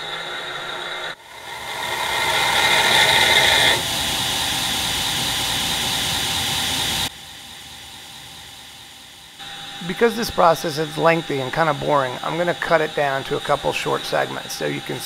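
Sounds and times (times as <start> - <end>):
belt grinder grinding metal: 0.0 - 3.8, 9.4 - 15.0.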